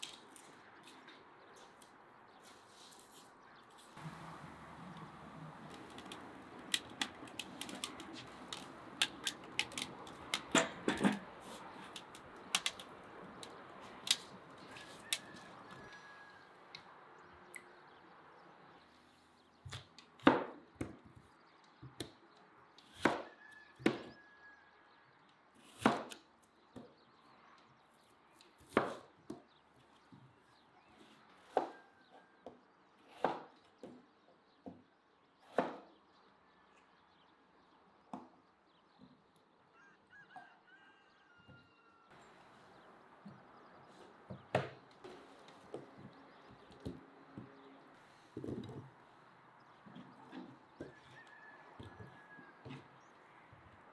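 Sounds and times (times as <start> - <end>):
wood fire crackling: 4.0 - 10.4.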